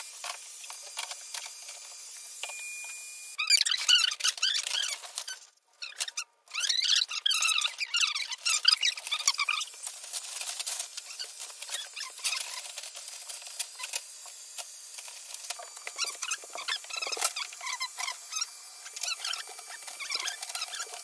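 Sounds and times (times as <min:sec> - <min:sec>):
sped-up squeaky voices: 0:03.4 - 0:09.8, 0:16.0 - 0:21.0.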